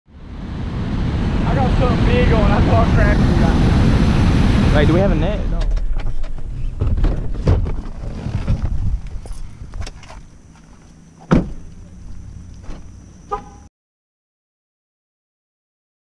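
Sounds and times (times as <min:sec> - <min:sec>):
low rumble: 0:00.1 - 0:10.0
car door shutting: 0:11.2 - 0:13.6.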